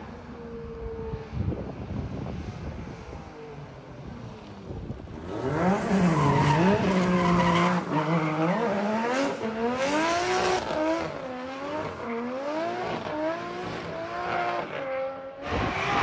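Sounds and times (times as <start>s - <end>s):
tyres squealing on asphalt: 5.4s - 9.7s.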